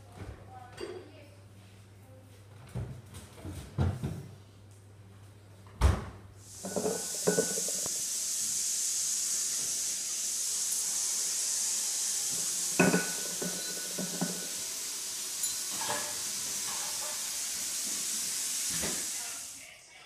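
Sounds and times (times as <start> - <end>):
steady high hiss: 6.4 - 19.8.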